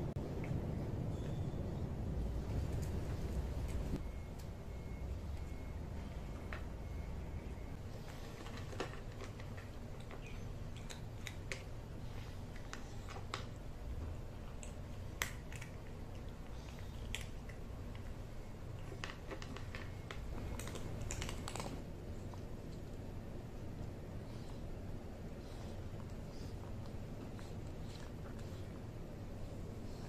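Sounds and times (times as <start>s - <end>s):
low steady background rumble: 0.0s - 30.0s
cat chewing food: 7.8s - 30.0s.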